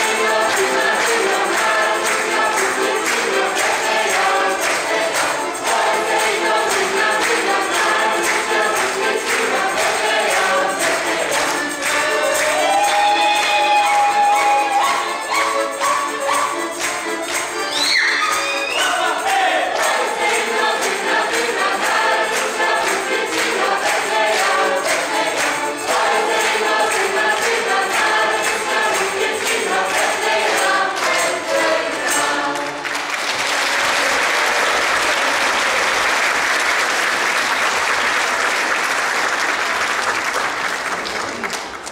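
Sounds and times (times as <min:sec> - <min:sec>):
accordion: 0:00.0 - 0:33.3
choir singing a carol: 0:00.0 - 0:38.2
percussion beat: 0:00.0 - 0:38.7
audience applauding: 0:00.0 - 0:41.9.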